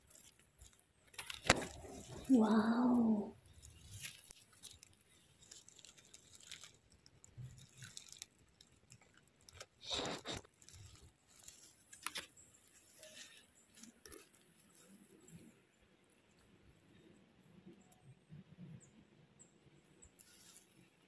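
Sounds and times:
leaves rustling and crunching: 0:00.0 - 0:15.6.

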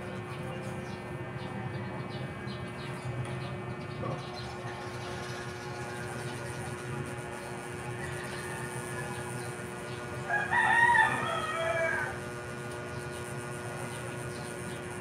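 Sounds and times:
faint background hum: 0:00.0 - 0:15.0
rooster crowing: 0:07.8 - 0:12.5.

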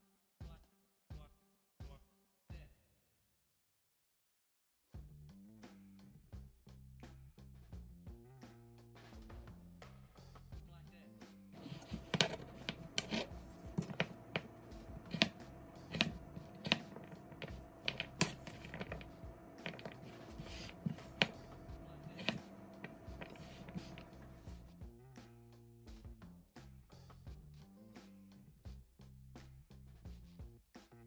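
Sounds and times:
knife chopping on plastic board: 0:11.6 - 0:24.5.

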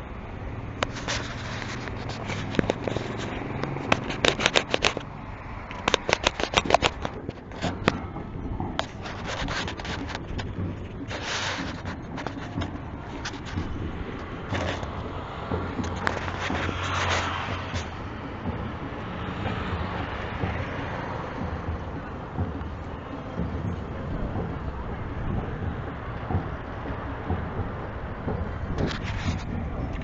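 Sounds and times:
street traffic: 0:00.0 - 0:30.0
camera handling clicks and rustles: 0:00.8 - 0:05.1, 0:05.7 - 0:07.8.

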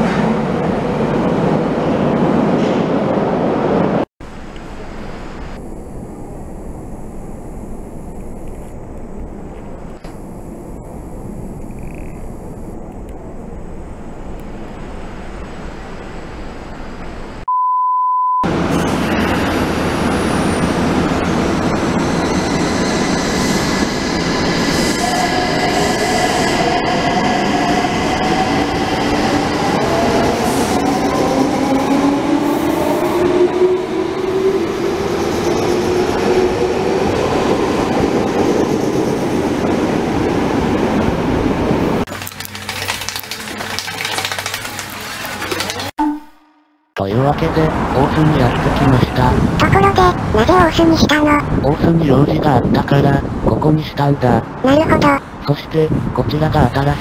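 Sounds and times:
steady beep: 0:17.5 - 0:18.5.

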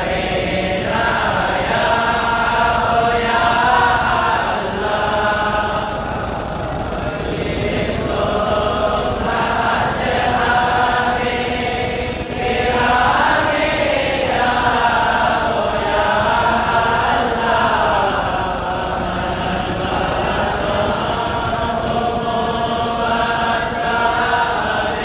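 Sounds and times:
voices chanting together: 0:00.0 - 0:25.0.

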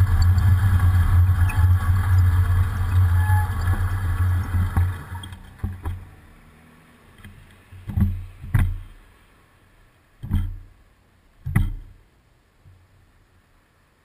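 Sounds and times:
pickup truck passing: 0:00.0 - 0:09.5.

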